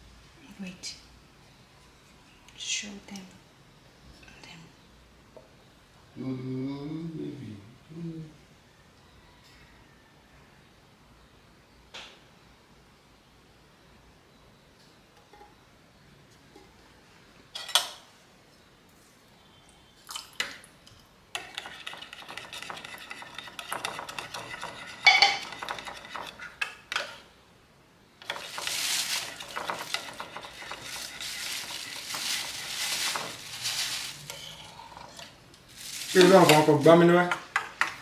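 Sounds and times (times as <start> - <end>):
metal spoon stirring in ceramic bowl: 21.4 - 27.2, 28.2 - 33.6.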